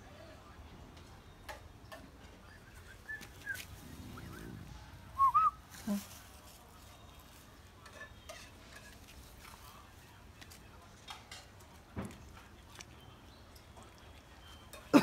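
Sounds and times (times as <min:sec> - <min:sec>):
whistled chirps: 0:02.5 - 0:03.7, 0:05.2 - 0:05.6.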